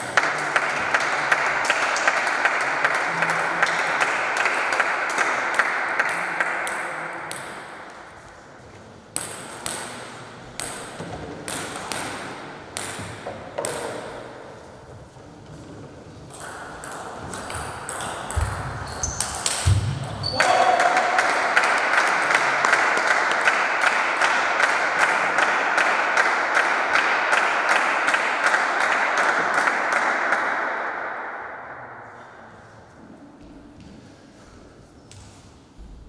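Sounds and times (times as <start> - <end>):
spectators clapping: 0.0 - 7.1, 20.4 - 30.8
table tennis ball hits: 9.2 - 14.4, 16.3 - 20.5.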